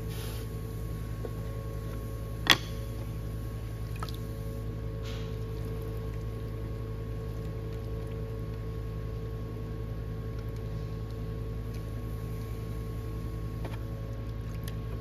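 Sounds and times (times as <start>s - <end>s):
pottery wheel humming: 0.0s - 15.0s.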